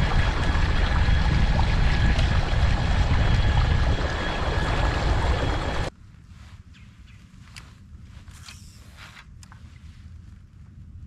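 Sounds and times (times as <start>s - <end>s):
water rushing along hull: 0.0s - 5.9s
wind buffeting microphone: 0.0s - 8.4s.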